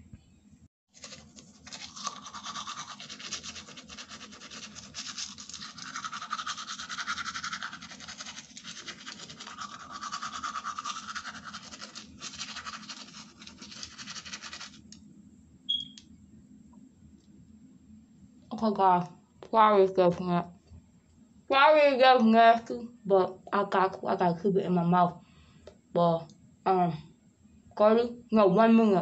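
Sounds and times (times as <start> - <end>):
toothbrush scrubbing teeth: 1.0 - 14.9
high-pitched blip: 15.7 - 16.0.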